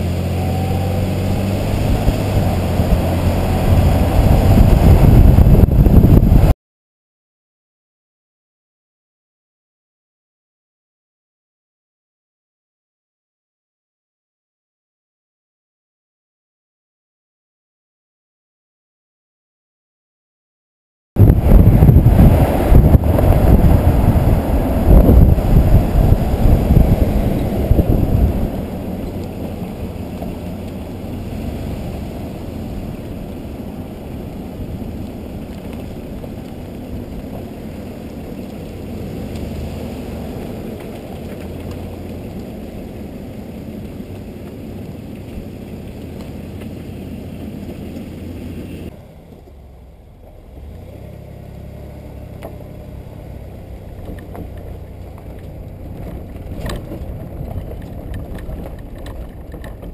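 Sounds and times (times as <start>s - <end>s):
trailer rolling on dirt road: 0.0s - 6.5s, 21.2s - 59.9s
road rumble: 0.0s - 6.6s, 21.2s - 59.9s
wind buffeting: 0.4s - 6.5s, 21.2s - 49.7s, 53.3s - 59.9s
knocks and rattles: 54.0s - 59.9s.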